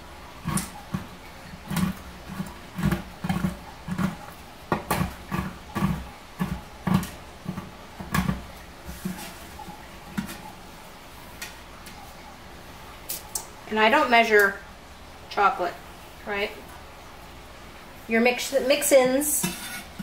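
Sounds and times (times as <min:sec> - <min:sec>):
knife chopping chocolate: 0:00.5 - 0:08.4.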